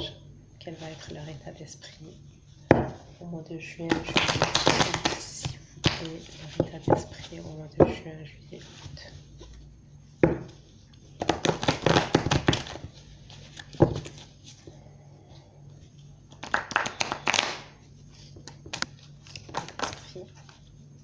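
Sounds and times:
cards shuffled by hand: 4.0s - 6.6s, 11.2s - 14.6s, 16.3s - 20.7s.

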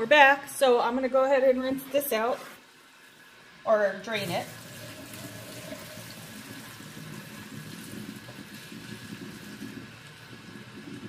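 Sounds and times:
water pouring into a sink: 4.2s - 11.0s
water gurgling down a drain: 4.5s - 11.0s.

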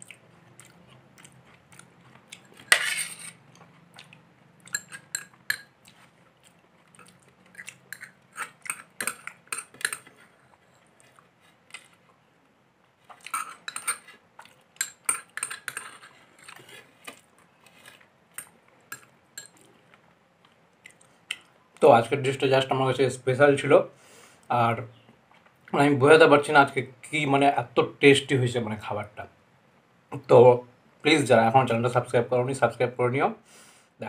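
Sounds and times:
spoon clinking on glass bowl: 4.7s - 5.7s.

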